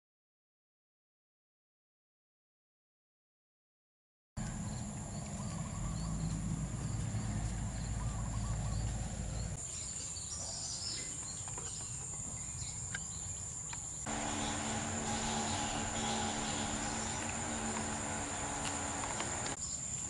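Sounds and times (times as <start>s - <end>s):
low rumble: 4.4s - 9.6s
bird chirps: 4.4s - 19.8s
insects droning: 4.4s - 20.0s.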